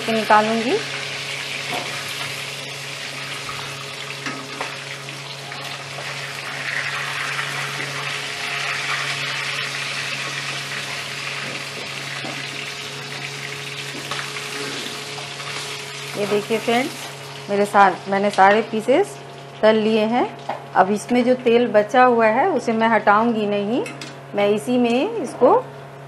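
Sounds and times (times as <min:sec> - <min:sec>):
hot oil sizzling in a pan: 0:00.0 - 0:19.7.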